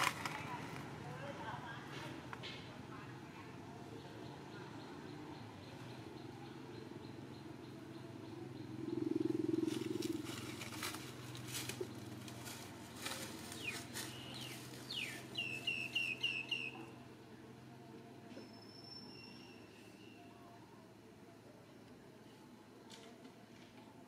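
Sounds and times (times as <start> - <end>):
bird calling: 12.9 - 17.0.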